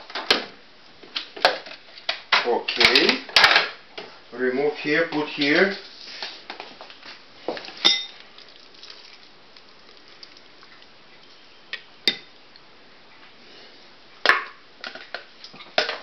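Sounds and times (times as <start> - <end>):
utensils clinking on ceramic bowl: 7.8 - 8.2.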